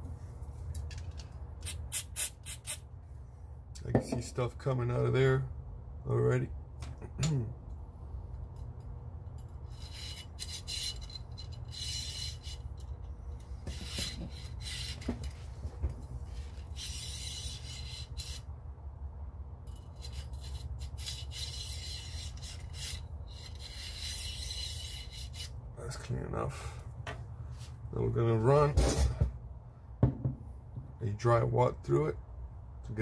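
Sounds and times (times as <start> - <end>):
steady low hum: 0.0 - 33.0
cleaning rod rasping in rifle barrel: 1.6 - 2.8, 9.7 - 15.5, 16.3 - 18.5, 19.7 - 25.6.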